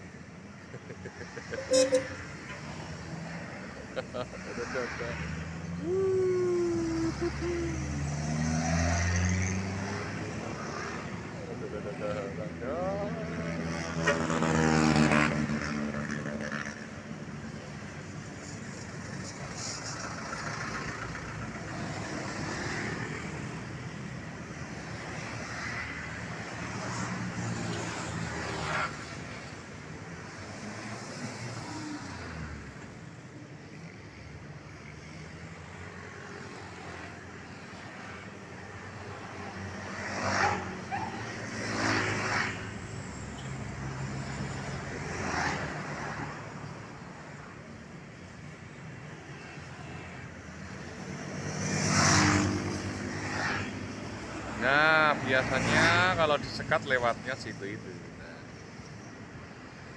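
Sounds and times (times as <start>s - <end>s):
vehicles passing close: 0.0s - 59.9s
motorcycles driving by: 0.4s - 17.2s, 50.5s - 57.8s.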